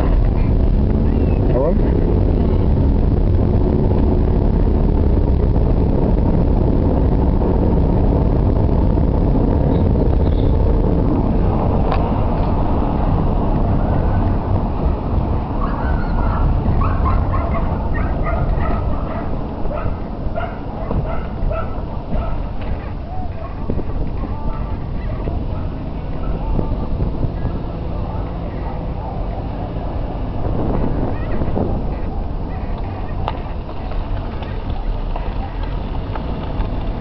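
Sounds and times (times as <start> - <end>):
car interior road rumble: 0.0 - 37.0
dog barking and yapping: 15.6 - 26.4.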